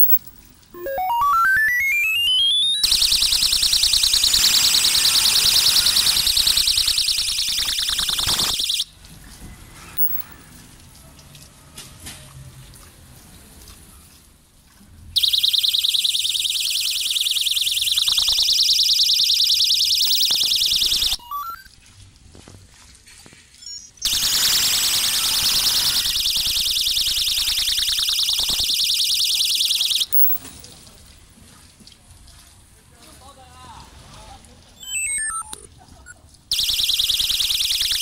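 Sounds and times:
pulsing high-pitched electronic alarm: 0.0 - 8.9, 10.0 - 10.4, 15.2 - 21.7, 23.7 - 30.5, 34.8 - 35.6, 36.5 - 38.0.

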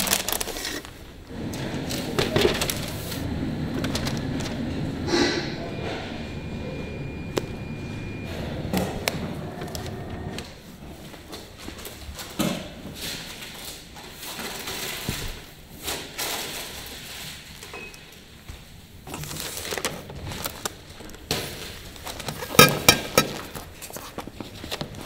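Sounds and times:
knocks and rustling: 1.3 - 10.6.

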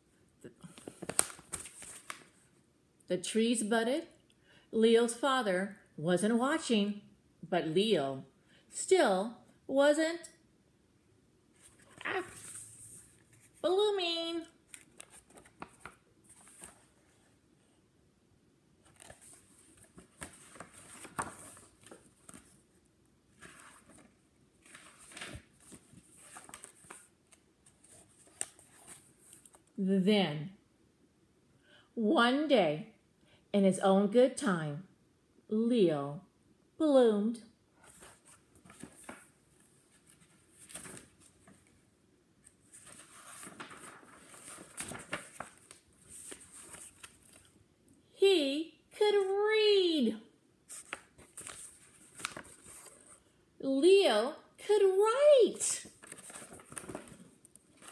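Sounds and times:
book pages rustling: 0.6 - 2.6, 11.6 - 13.7, 14.6 - 17.4, 18.8 - 29.8, 37.8 - 47.6, 50.7 - 53.4, 55.8 - 57.9.

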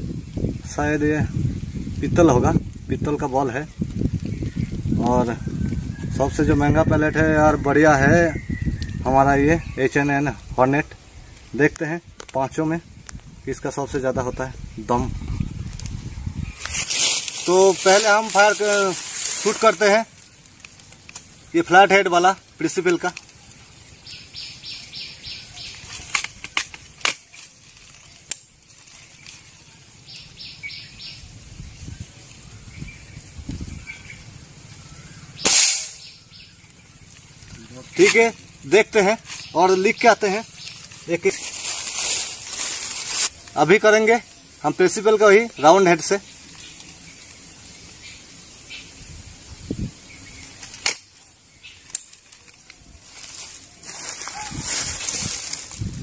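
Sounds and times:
birds chirping: 2.9 - 55.6
pellet hitting steel plate: 35.4 - 36.0
air rifle shot: 35.4 - 36.1.

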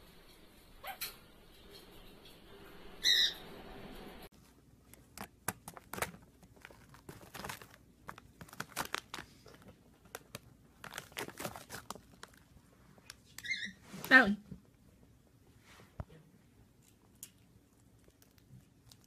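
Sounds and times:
parrot call: 3.0 - 3.5
clicks and crinkles of plastic: 4.9 - 13.5.

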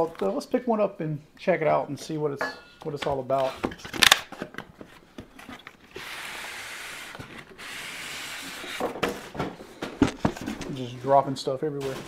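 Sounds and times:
styrofoam box scraping out: 6.0 - 8.8.

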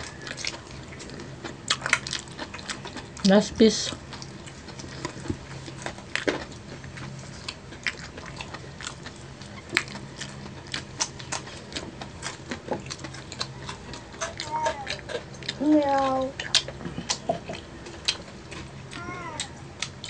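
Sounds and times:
crunchy chewing of fried chicken: 0.0 - 20.0.

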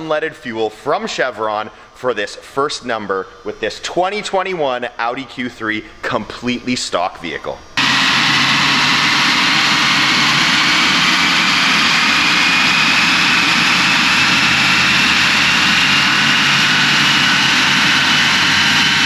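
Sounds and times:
faint rising whine: 7.6 - 19.0
engine and tyres on rollers: 7.8 - 19.0.

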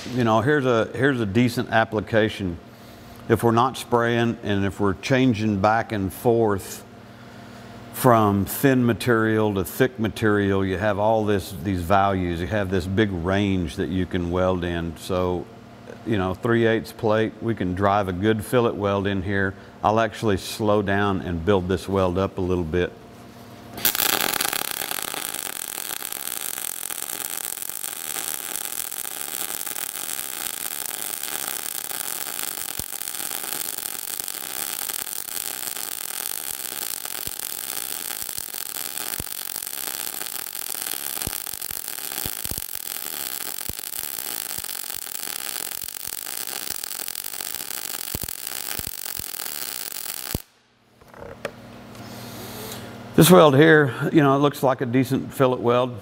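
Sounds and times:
welding arc hissing and popping: 0.0 - 0.6, 23.8 - 50.6.

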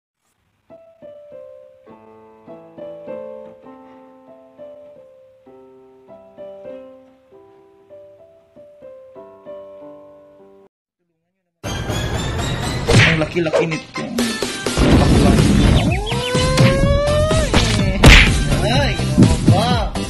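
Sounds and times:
gentle piano music: 0.7 - 10.7.

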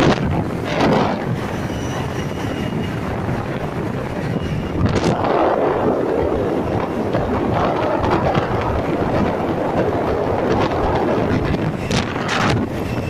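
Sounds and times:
motorcycle engine and road noise: 0.0 - 13.0
wind rushing over microphone: 0.0 - 13.0.

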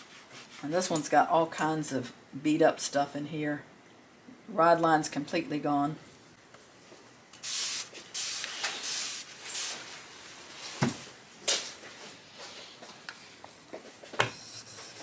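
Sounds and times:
spray bottle squirting: 7.4 - 9.8.

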